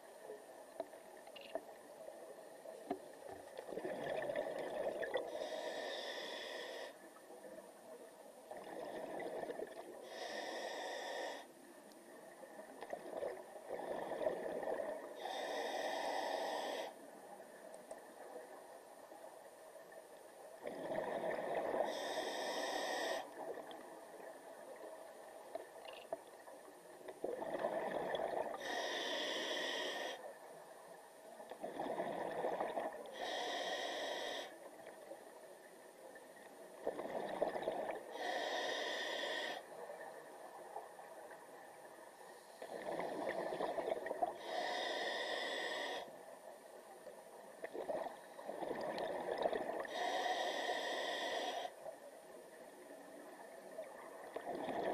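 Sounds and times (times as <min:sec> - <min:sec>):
regulator hissing inhale: 0:05.2 - 0:07.0, 0:10.0 - 0:11.5, 0:15.2 - 0:17.0, 0:21.6 - 0:23.4, 0:28.6 - 0:30.2, 0:33.1 - 0:34.6, 0:38.1 - 0:39.7, 0:44.4 - 0:46.1, 0:49.8 - 0:51.8.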